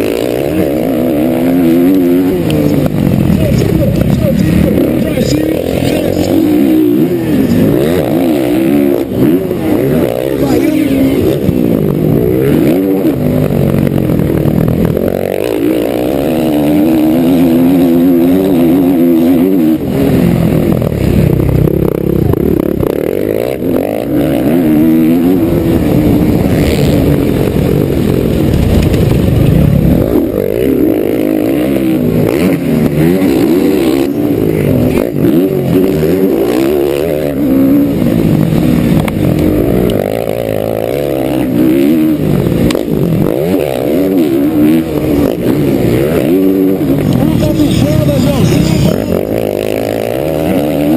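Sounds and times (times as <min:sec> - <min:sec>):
motocross bike engine revving: 0:00.0 - 0:50.9.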